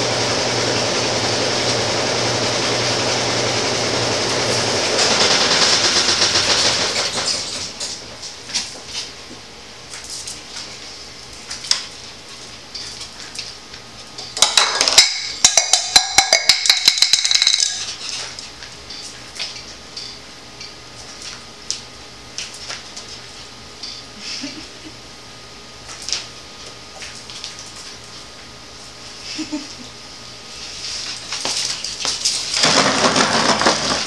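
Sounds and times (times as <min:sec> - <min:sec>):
rapid clicking and clatter: 0:04.9 - 0:07.7, 0:32.1 - 0:34.0.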